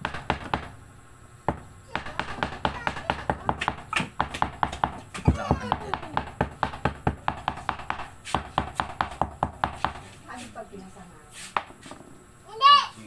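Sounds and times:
herbs being pounded: 0.0 - 0.8, 1.5 - 10.2.

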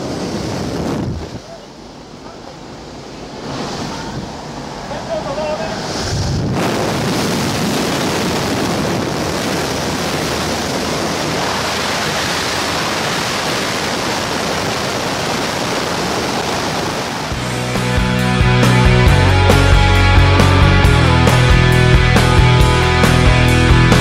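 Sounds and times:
wind buffeting microphone: 0.0 - 1.6, 5.6 - 17.4.

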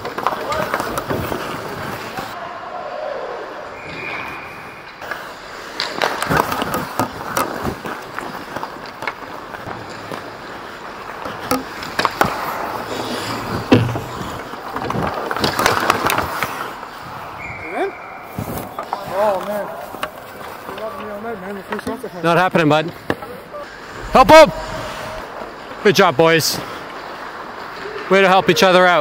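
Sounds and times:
hockey sticks and puck clacking: 0.0 - 2.4, 4.9 - 17.2, 18.3 - 23.4, 26.5 - 29.0
skate blades scraping ice: 0.0 - 2.4, 5.0 - 22.2, 23.0 - 29.0.

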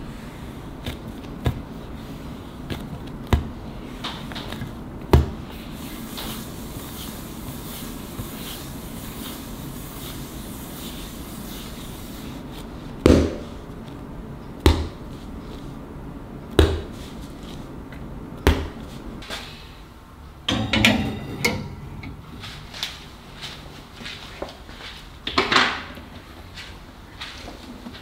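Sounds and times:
dough rubbing on board: 5.5 - 13.6
tray clattering onto wire rack: 20.5 - 22.5.

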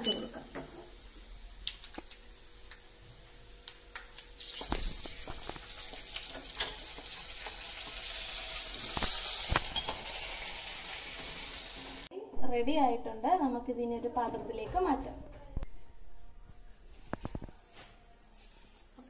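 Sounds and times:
loud sizzle: 0.0 - 12.1
hot oil crackling and popping: 1.6 - 2.9, 3.6 - 12.1.

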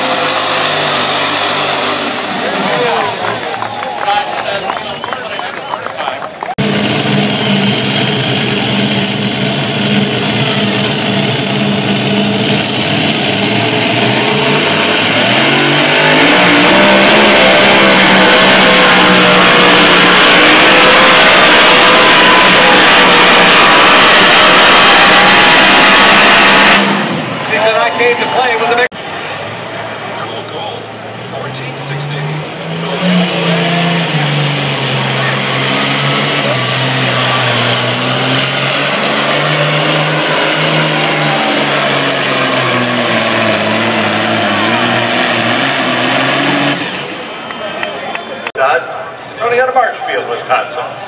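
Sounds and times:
engine at full throttle: 0.0 - 49.1.

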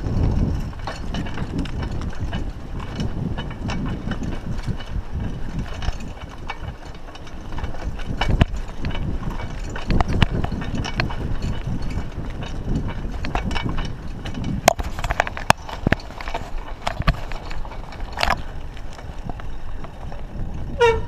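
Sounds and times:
bike frame and chain rattling: 0.0 - 21.0
bike tyres rumbling on dirt: 0.0 - 21.0.

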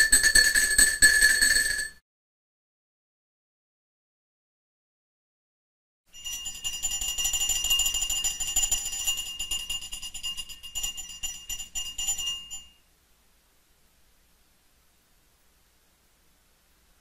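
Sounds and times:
small bell ringing: 0.0 - 2.0, 6.1 - 12.9.

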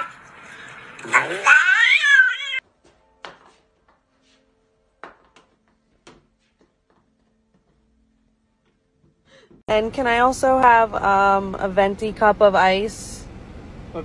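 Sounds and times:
cat yowling meow: 1.1 - 2.6.

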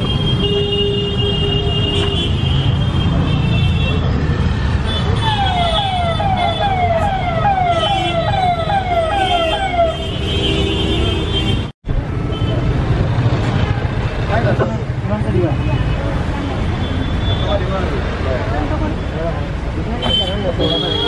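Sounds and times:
crowd hubbub: 12.0 - 21.0.

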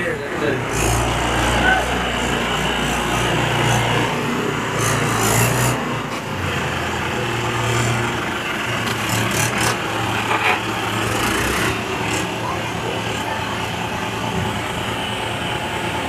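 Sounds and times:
diesel tractor engines under load: 0.0 - 16.0.

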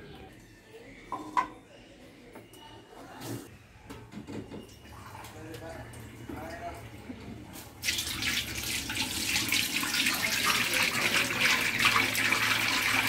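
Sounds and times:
liquid pouring and splashing into pot: 7.8 - 13.0.

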